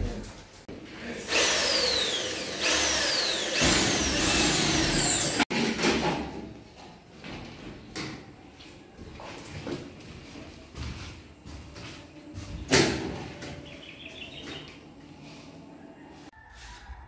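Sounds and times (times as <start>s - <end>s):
power drill whining: 1.2s - 5.5s.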